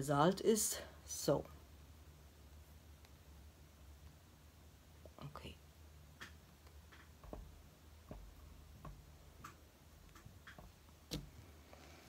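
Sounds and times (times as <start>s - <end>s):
hands tapping soft clay: 6.2s - 11.4s.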